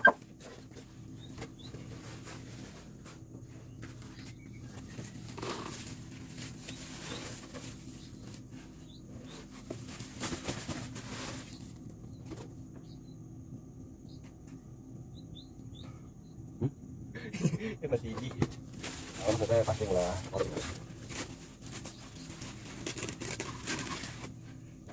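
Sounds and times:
mealworms rustling into bucket: 18.6s - 24.3s.

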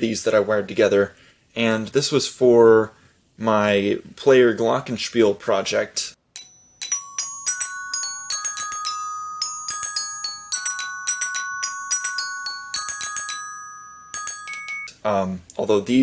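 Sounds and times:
glockenspiel melody: 6.3s - 14.9s.

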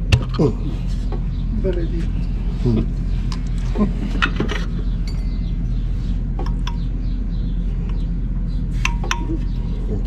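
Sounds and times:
steady low hum: 0.0s - 10.0s
metal pipes clinking: 8.8s - 9.4s.

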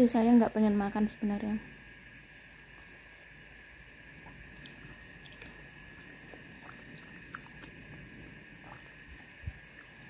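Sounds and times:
faint steady hum: 0.0s - 10.0s
person chewing food: 4.2s - 10.0s.

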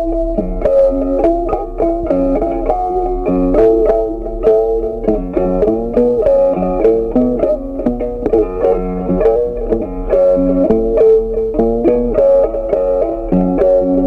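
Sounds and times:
plucked-string melody: 0.0s - 14.0s.

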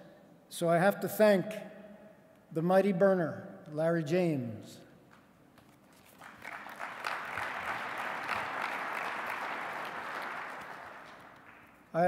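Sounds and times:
audience applauding: 6.0s - 11.9s.

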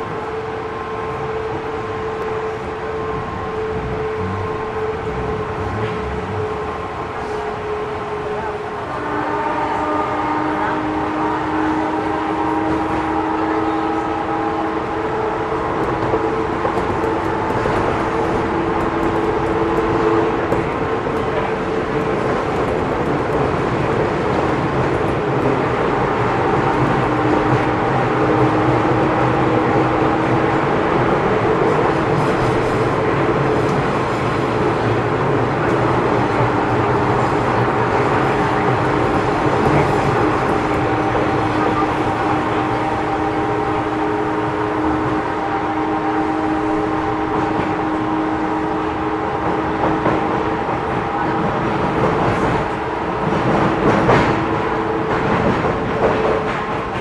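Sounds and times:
train wheel-on-rail rumble: 0.0s - 57.0s
train motor whine: 0.3s - 8.0s.

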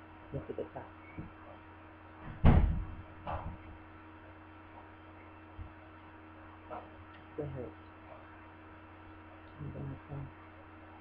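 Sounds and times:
low electrical hum: 0.0s - 11.0s
heavy thump: 2.2s - 3.6s.

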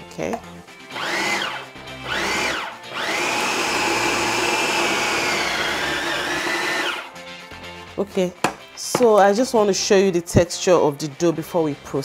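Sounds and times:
food processor motor pulsing: 0.9s - 7.1s.

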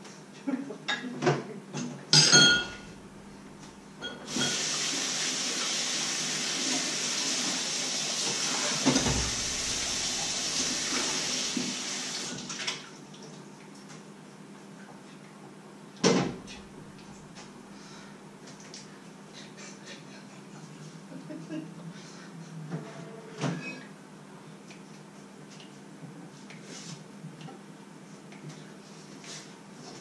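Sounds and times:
dishes and pans clattering: 1.8s - 3.0s, 4.0s - 4.8s
ringing metal clank: 2.2s - 3.0s
tap running into sink: 8.2s - 12.8s.

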